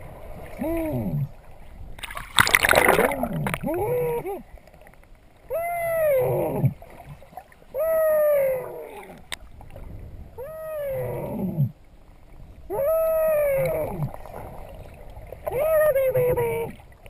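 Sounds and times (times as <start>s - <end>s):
person wailing underwater: 0.5s - 1.4s, 2.8s - 4.6s, 5.4s - 6.9s, 7.7s - 9.3s, 10.3s - 11.8s, 12.6s - 14.6s, 15.4s - 17.0s.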